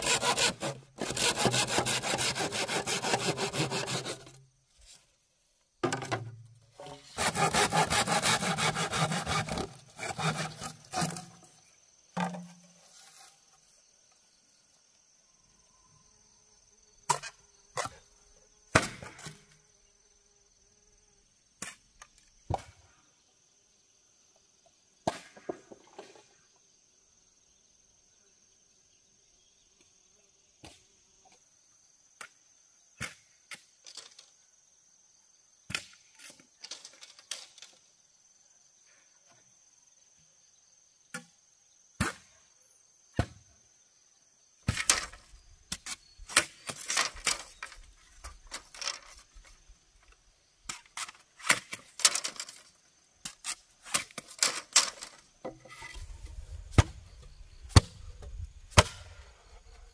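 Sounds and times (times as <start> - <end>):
high drone of insects: 0.0 - 59.9
bamboo being chopped: 5.8 - 6.4, 18.7 - 19.3, 58.7 - 59.2.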